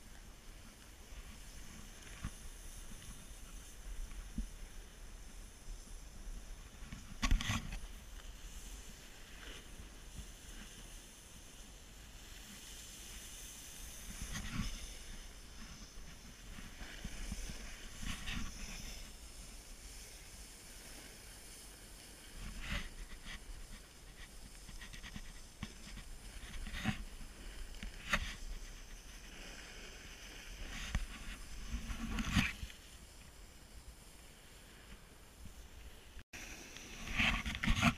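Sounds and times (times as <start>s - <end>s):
snowboard sliding over packed snow: 0.0s - 37.9s
wind rumbling on microphone: 0.0s - 37.9s
sharp knocks and scrapes: 6.8s - 7.9s, 22.4s - 29.0s, 30.6s - 32.7s, 37.0s - 37.9s.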